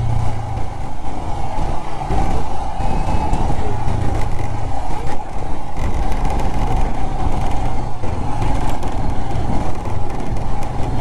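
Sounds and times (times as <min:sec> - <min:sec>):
motorcycle engine running: 0:00.0 - 0:02.4.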